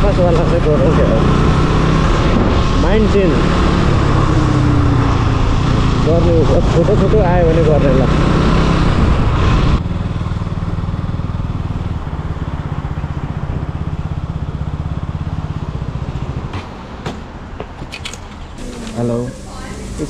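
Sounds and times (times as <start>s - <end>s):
motorcycle engine running: 0.0s - 16.6s
wind rush: 8.4s - 9.8s.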